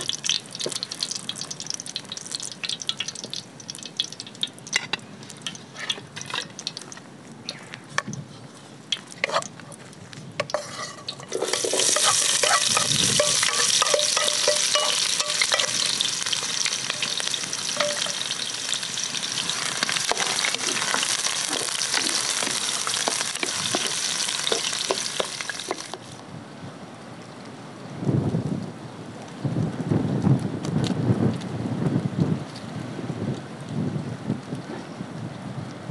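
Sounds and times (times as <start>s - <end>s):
onions sizzling in hot oil: 0.0s - 4.7s, 10.4s - 26.2s
faint crackles: 0.0s - 26.2s.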